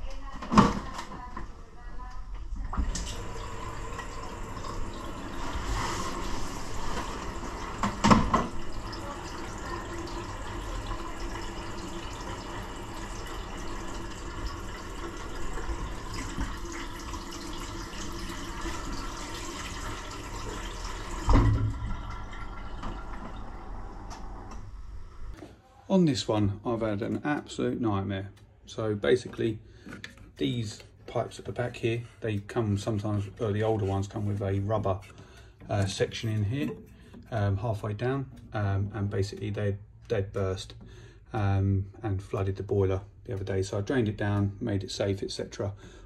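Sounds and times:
water rushing through pipes: 2.6 - 25.4.

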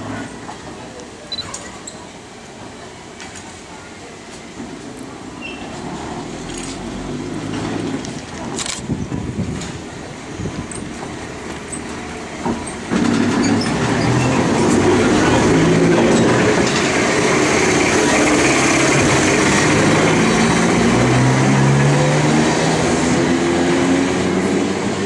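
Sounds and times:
steel wheels rumbling on rails: 5.6 - 25.0.

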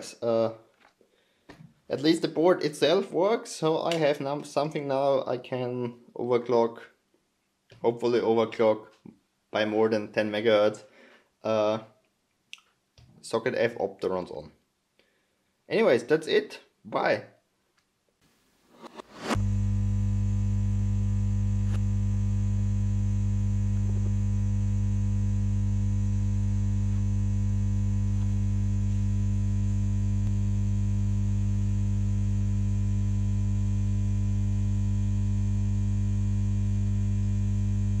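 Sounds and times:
electrical mains hum: 19.3 - 38.0.

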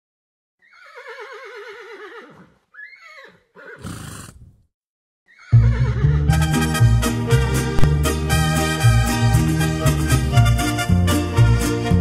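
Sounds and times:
horse whinnying: 0.6 - 4.6, 5.3 - 6.3
horse breathy blow: 3.7 - 4.6
loud band music: 6.3 - 12.0.

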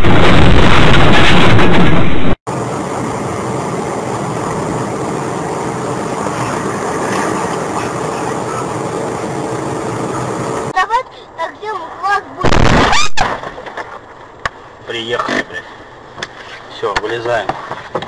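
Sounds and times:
car driving drone: 0.0 - 10.8
loud distorted vehicle rumble: 0.0 - 10.8.

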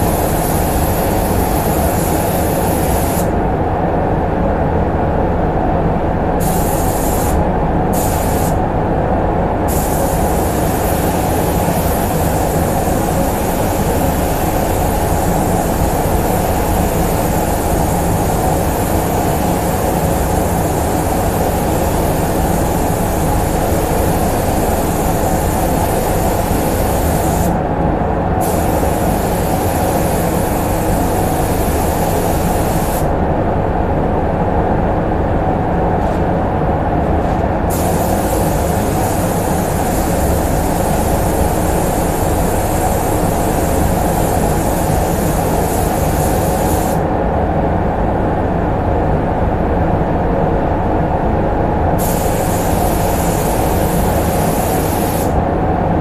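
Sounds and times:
spray gun hissing: 0.0 - 3.3, 6.4 - 8.6, 9.7 - 27.6, 28.4 - 33.1, 37.7 - 47.0, 52.0 - 55.4
ventilation rumble: 0.0 - 56.0.

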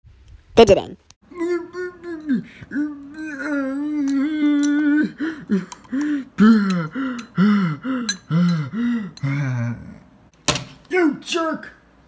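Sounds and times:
person wailing in cartoon voice: 0.6 - 5.2.

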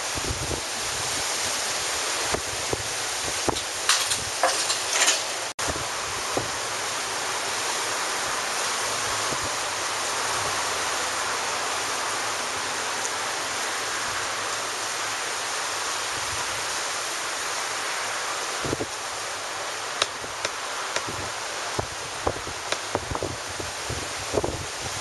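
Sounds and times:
ocean surf breaking: 14.8 - 25.0.

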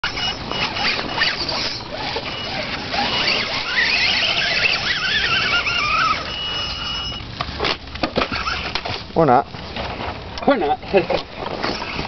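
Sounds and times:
rc car electric motor whining: 0.0 - 7.3, 8.1 - 9.0, 11.6 - 12.0.

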